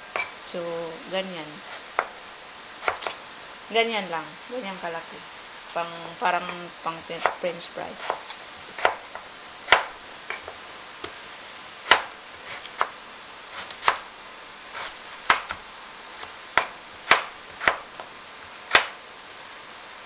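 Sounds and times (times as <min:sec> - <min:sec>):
knife slicing potato: 0:02.8 - 0:03.2, 0:06.4 - 0:11.2, 0:11.8 - 0:14.1, 0:14.8 - 0:15.6, 0:16.2 - 0:18.0, 0:18.7 - 0:19.0.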